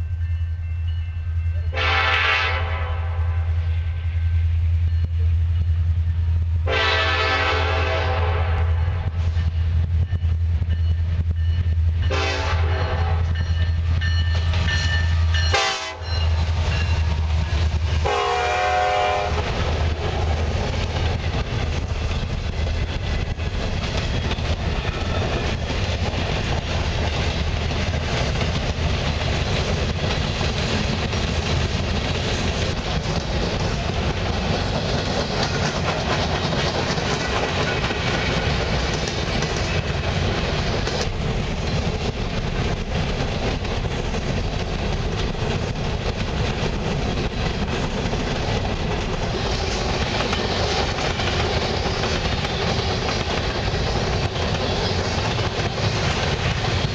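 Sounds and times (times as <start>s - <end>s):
diesel locomotive drone: 0.0s - 56.9s
locomotive horn blasts: 1.7s - 3.6s, 6.6s - 9.1s, 12.1s - 13.4s, 15.5s - 16.2s, 18.0s - 19.5s
train wheels clattering on rails: 4.7s - 56.9s.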